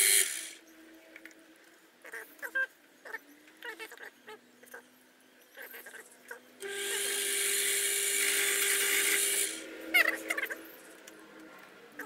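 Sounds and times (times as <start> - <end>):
lathe motor whine: 0.0 - 0.6, 6.6 - 11.0
tool hissing cutting wood: 0.0 - 0.6, 6.6 - 9.7.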